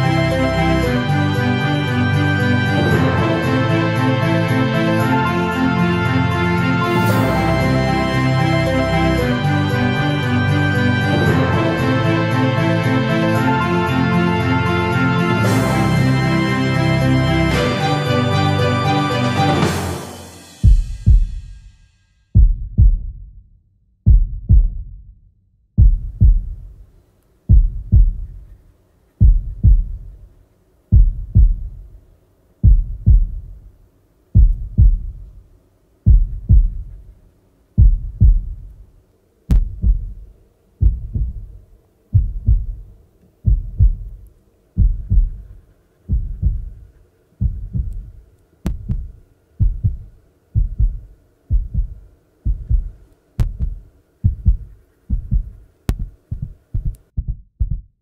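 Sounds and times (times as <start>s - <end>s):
heartbeat double thump: 20.6s - 21.4s, 22.4s - 23.3s, 24.1s - 25.0s, 25.8s - 26.7s, 27.5s - 28.5s, 29.2s - 30.2s, 30.9s - 31.9s, 32.6s - 33.6s, 34.4s - 35.3s, 36.1s - 37.0s, 37.8s - 38.7s, 39.5s - 44.2s, 44.8s - 58.0s.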